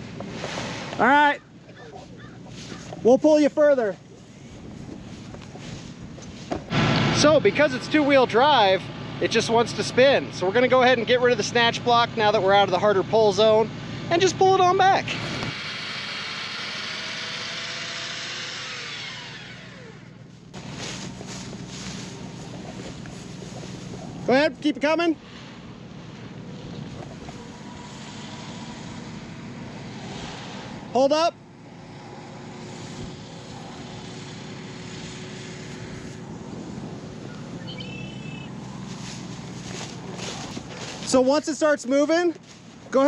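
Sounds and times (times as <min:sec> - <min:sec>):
grass brushing microphone: 0:00.0 - 0:12.9, 0:15.0 - 0:31.1, 0:31.8 - 0:43.0
truck engine idling: 0:00.0 - 0:43.0
electric winch motor running: 0:11.8 - 0:24.3, 0:31.5 - 0:41.1
short high chirp: 0:37.6 - 0:38.5.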